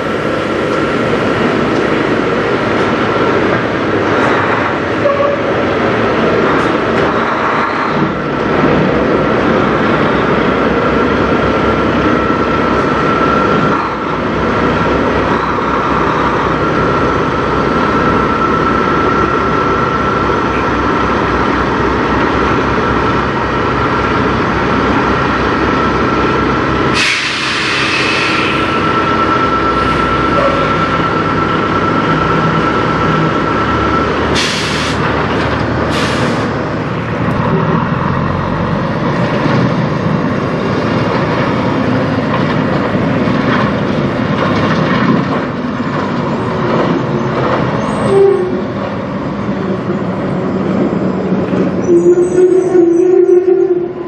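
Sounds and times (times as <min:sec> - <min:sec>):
air brake hiss: 0:26.9 - 0:28.8, 0:34.4 - 0:35.0, 0:35.9 - 0:36.6.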